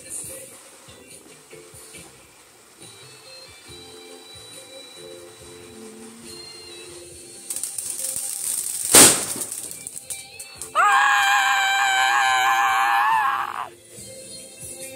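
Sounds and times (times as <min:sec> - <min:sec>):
firework fountain crackling and hissing: 0:00.0 - 0:10.8
firework bang: 0:07.6 - 0:09.8.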